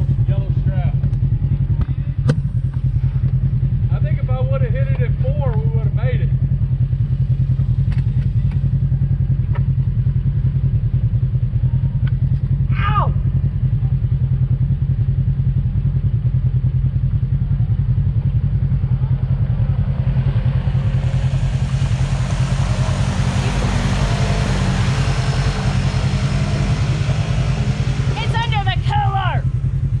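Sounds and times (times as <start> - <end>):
off-road vehicle engine idling: 0.0 - 30.0
vehicle approaching through mud: 16.8 - 30.0.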